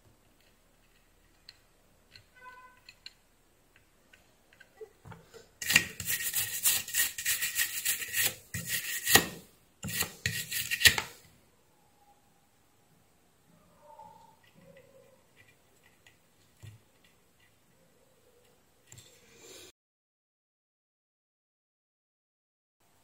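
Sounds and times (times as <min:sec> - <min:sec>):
rough scraping and rubbing strokes: 0:05.6 - 0:11.0.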